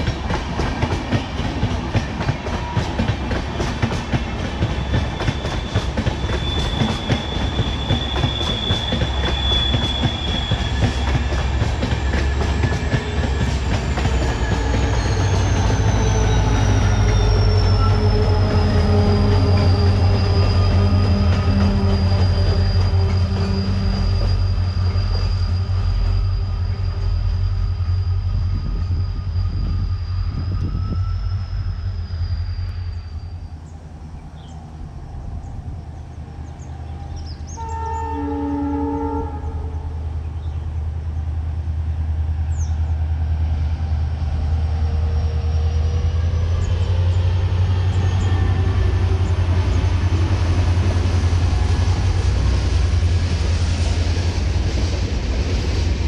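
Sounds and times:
train wheels clacking on rail joints: 0.0 - 26.8
high flange squeal: 0.0 - 40.6, 43.4 - 56.0
diesel locomotive engine rumble: 0.0 - 56.0.

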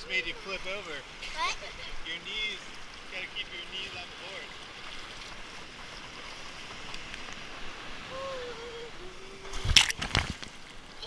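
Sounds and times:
surf rushing around a board: 0.0 - 11.0
loud water splash: 7.5 - 10.7.

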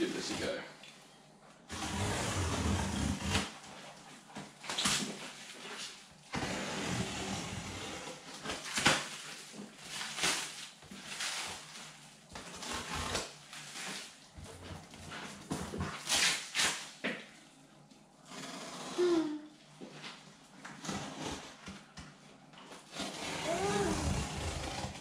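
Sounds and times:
plastic wrapping crinkling and ripping: 8.2 - 14.3, 15.8 - 17.0.

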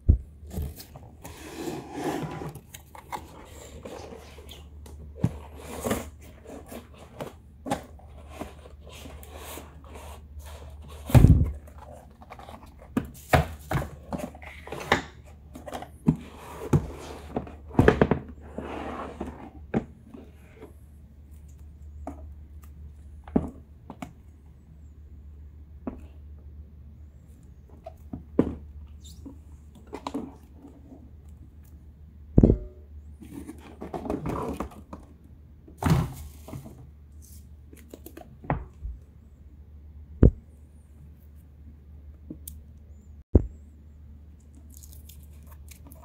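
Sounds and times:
low steady hum: 0.0 - 46.0
heavy thump: 32.4 - 32.8.

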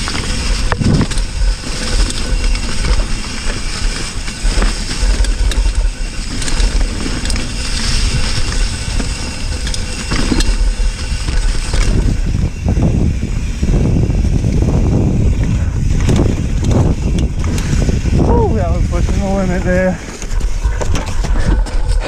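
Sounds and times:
bike clicks and rattles: 0.0 - 22.0
bike tyres rolling on dirt: 0.0 - 22.0
low microphone rumble: 4.5 - 22.0.

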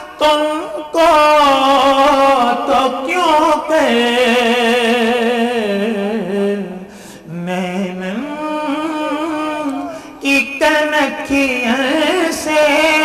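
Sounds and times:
man singing melismatic notes: 0.0 - 13.0.

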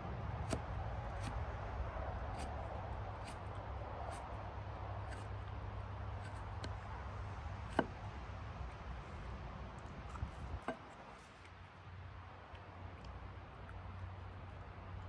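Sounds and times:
low steady rumble: 0.0 - 15.0
knife scraping roots: 2.3 - 4.3, 5.0 - 5.5.

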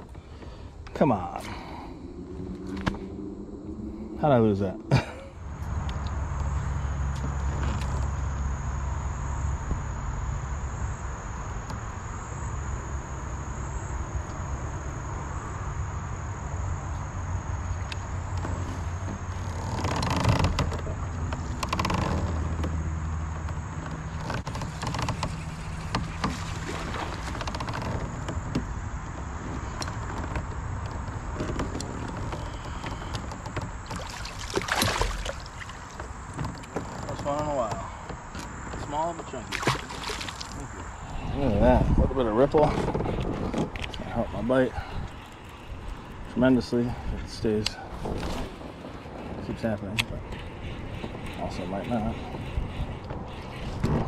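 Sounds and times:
steady low hum: 0.0 - 54.0
water splashing: 26.1 - 27.5, 33.8 - 36.7, 39.4 - 40.8.

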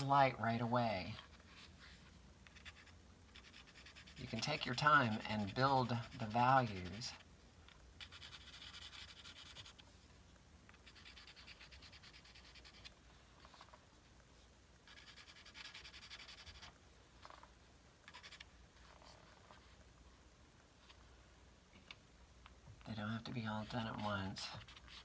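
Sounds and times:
pencil scratching on paper: 2.5 - 7.2, 8.0 - 9.8, 10.8 - 13.7, 14.8 - 17.4, 18.1 - 19.2, 23.5 - 25.0.

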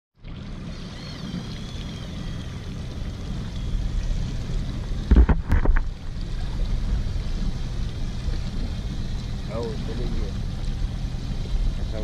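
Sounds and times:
jet ski engine rumble: 0.2 - 12.0
water washing against hull: 0.2 - 12.0.

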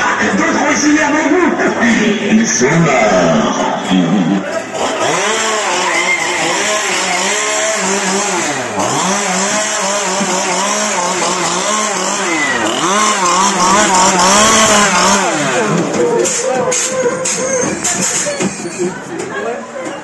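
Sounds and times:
chainsaw engine revving: 3.0 - 18.3.

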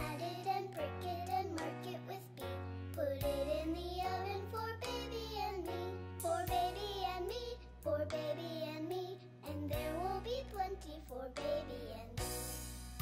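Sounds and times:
child singing: 0.0 - 12.2.

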